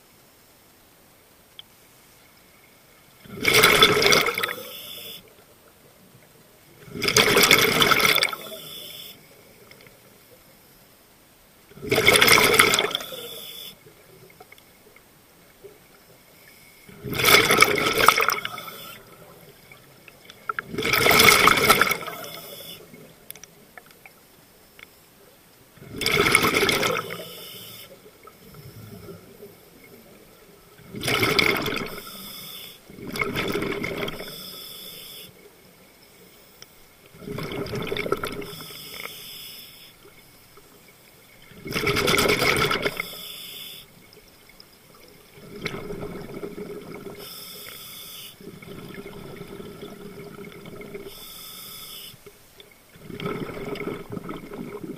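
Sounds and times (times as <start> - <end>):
underwater bubbles rushing: 3.2 - 4.7, 6.8 - 8.6, 11.7 - 13.3, 16.9 - 23.2, 25.8 - 32.2, 32.9 - 34.4, 37.1 - 38.7, 41.3 - 43.2, 44.0 - 47.3, 48.4 - 51.2, 52.7 - 54.9.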